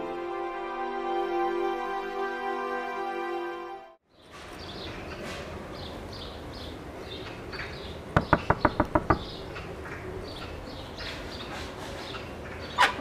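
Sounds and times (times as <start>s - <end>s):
faint birdsong: 4.0s - 13.0s
rapid knocking on a door: 8.2s - 9.4s.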